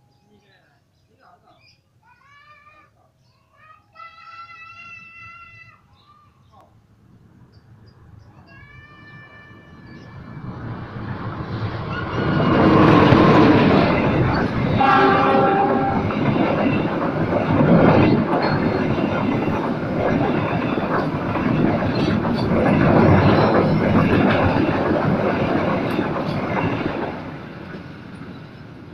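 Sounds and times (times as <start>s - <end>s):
train wheels rumbling and clattering: 9.1s - 28.9s.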